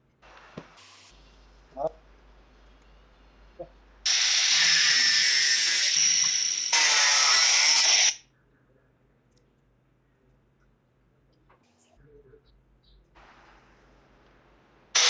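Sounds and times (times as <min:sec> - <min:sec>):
angle grinder cutting steel: 0:04.1 - 0:08.2.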